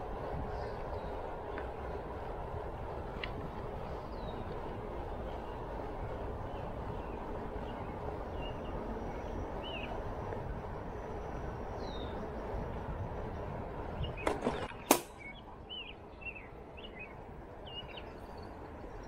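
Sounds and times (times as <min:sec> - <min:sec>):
wind on microphone: 0:00.0 - 0:15.2
road rumble: 0:00.0 - 0:19.0
birds chirping: 0:00.4 - 0:19.0.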